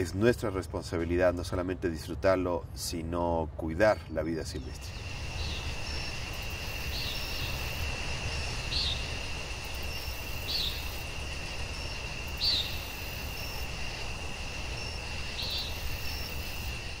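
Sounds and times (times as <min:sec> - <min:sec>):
high-pitched insect drone: 0:04.7 - 0:17.0.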